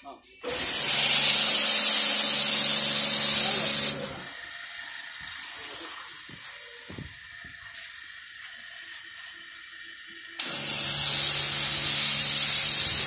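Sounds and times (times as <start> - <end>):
pump motor hum: 0.4 - 13.0
high-pressure spray hissing: 0.5 - 4.2, 10.4 - 13.0.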